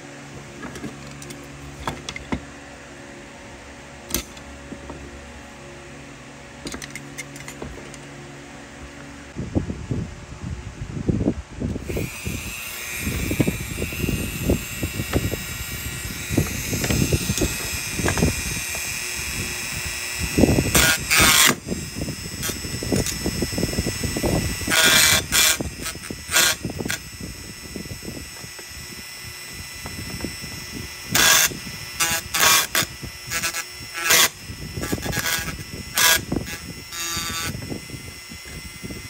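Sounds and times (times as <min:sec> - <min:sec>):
power tool whining: 0:00.0 - 0:09.4, 0:11.6 - 0:39.0
metal parts rattling: 0:06.6 - 0:08.0.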